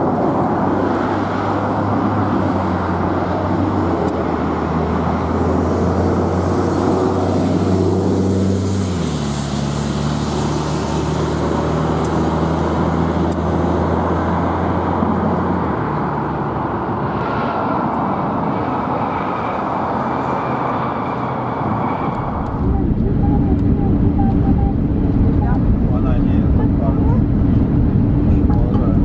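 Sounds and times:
jet engines roaring: 0.0 - 29.0
low hum: 21.7 - 29.0.

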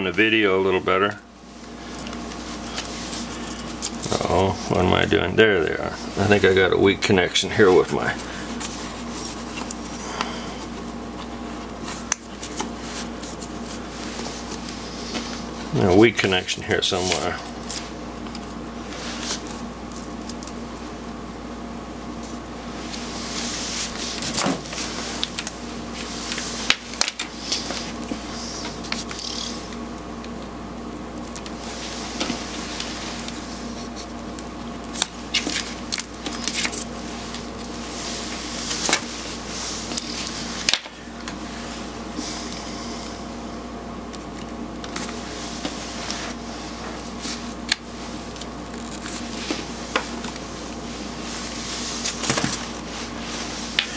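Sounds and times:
faint steady hum: 0.0 - 53.9
wires rustling and rubbing: 1.5 - 4.8, 7.6 - 20.6, 22.2 - 29.8, 35.2 - 42.6, 44.9 - 53.9.

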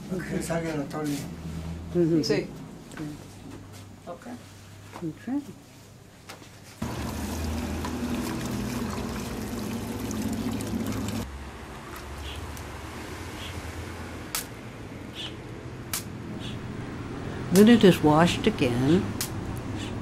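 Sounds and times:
water splashing in bucket: 6.8 - 11.3.

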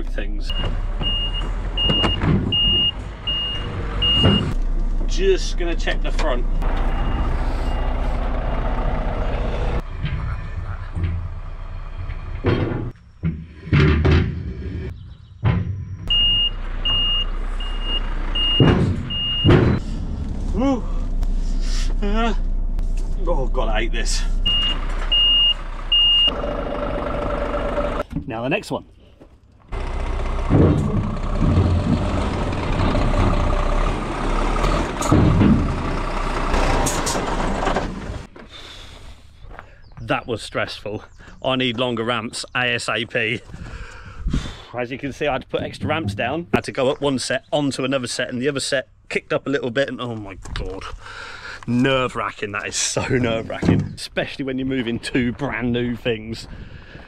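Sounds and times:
diesel engine running: 0.0 - 28.0, 29.6 - 39.5
truck reversing alarm beeping: 0.5 - 4.6, 6.4 - 12.5, 15.4 - 20.2, 24.4 - 28.0
wooden ramps clunking: 0.6 - 5.2, 9.8 - 20.6, 29.2 - 39.8, 45.4 - 46.9, 51.7 - 54.1.

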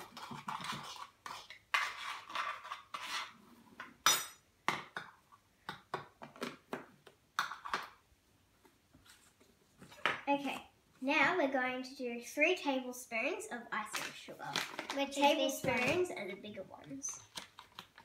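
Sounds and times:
teaspoons scraping powder in bowls: 0.0 - 3.4.

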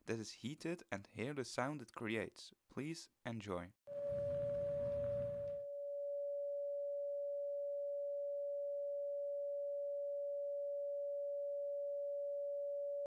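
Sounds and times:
test tube singing steady tone: 3.9 - 13.0.

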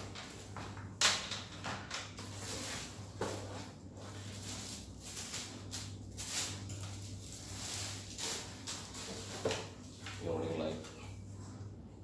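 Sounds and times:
plastic packaging rustling: 0.0 - 10.7.

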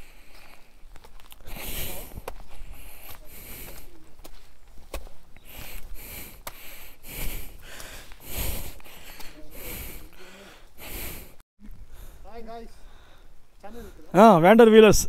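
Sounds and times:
person breathing hard: 1.4 - 4.0, 5.4 - 14.0.

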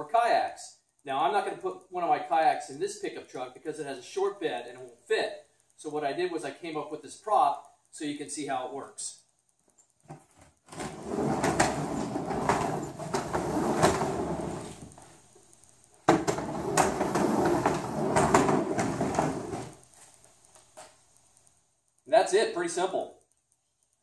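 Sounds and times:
plastic tote rattling over rollers: 10.7 - 15.0, 16.1 - 19.8.

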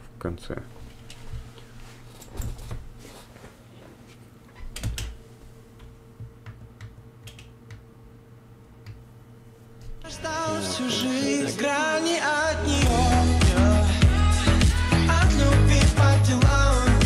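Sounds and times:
faint steady hum: 0.0 - 17.0
computer keyboard clicks: 6.4 - 7.8.

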